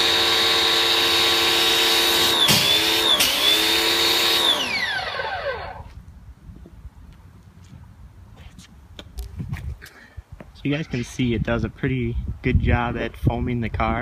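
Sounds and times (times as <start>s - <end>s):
pressure washer motor whining: 0.0s - 5.9s.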